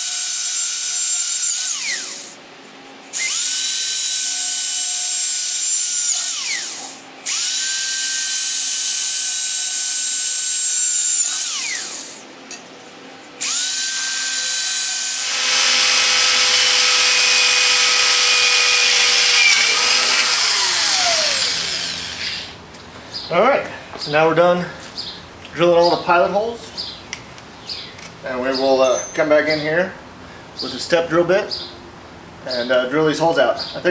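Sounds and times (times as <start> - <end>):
electric drill boring steel: 0.0 - 12.4, 13.3 - 22.6.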